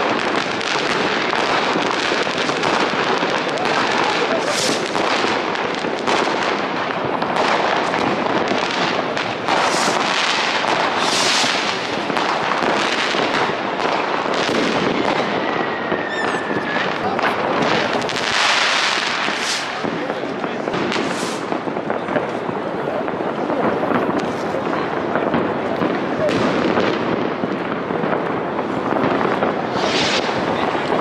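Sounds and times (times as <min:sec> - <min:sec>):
fireworks bangs and crackles: 0:00.0 - 0:31.0
firework whistle: 0:03.8 - 0:05.0, 0:09.5 - 0:11.9, 0:15.1 - 0:17.0, 0:18.4 - 0:19.8, 0:20.9 - 0:21.6.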